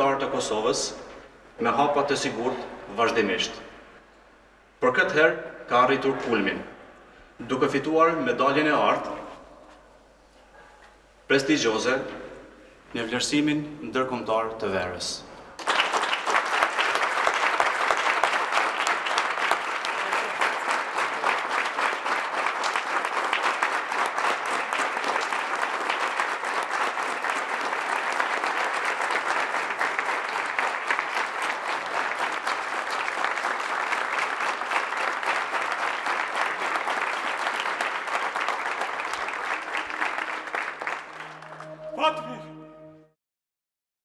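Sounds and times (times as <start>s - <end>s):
crowd applauding: 15.6s - 42.4s.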